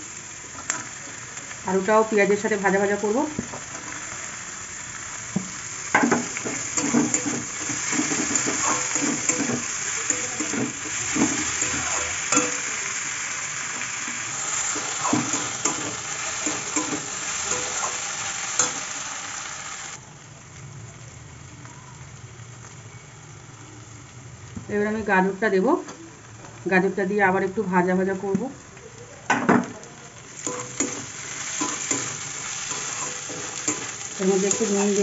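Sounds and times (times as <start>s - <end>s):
food sizzling in oil: 0.0s - 35.0s
metal spatula scraping pan: 6.0s - 12.7s, 30.4s - 35.0s.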